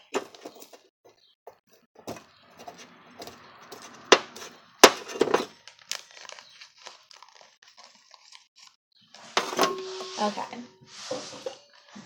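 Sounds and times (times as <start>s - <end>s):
beads clicking and rustling: 5.5s - 8.8s
bowl knocking: 9.4s - 11.7s.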